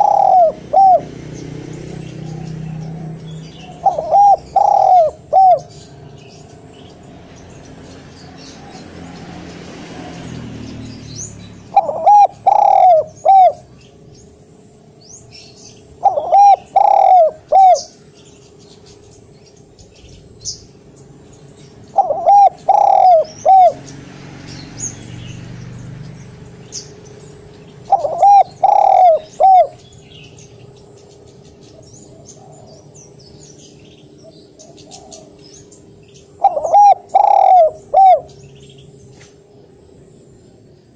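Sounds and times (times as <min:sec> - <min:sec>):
dove cooing: 0:00.0 - 0:06.1, 0:11.6 - 0:13.8, 0:16.0 - 0:18.0, 0:21.9 - 0:23.9, 0:27.8 - 0:30.0, 0:31.7 - 0:33.2, 0:34.2 - 0:35.6, 0:36.3 - 0:38.4.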